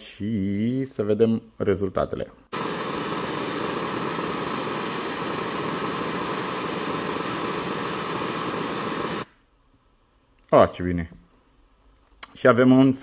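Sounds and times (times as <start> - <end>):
pink noise hiss from speaker: 1.6 - 9.4.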